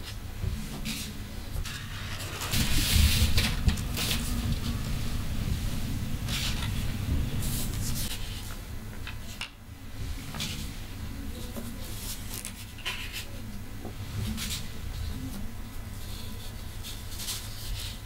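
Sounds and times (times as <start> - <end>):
low steady rumble: 0.3 - 12.1
paper sheets rustling: 0.8 - 9.4, 11.3 - 13.4, 14.1 - 18.0.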